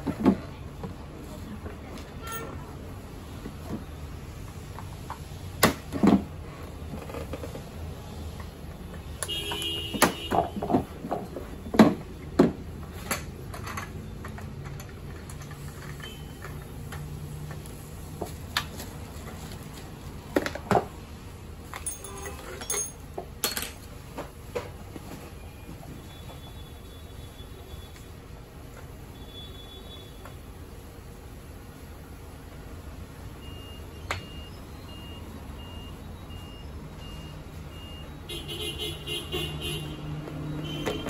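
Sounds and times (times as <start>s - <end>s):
plastic parts knocking and clicking: 8.4s - 17.6s.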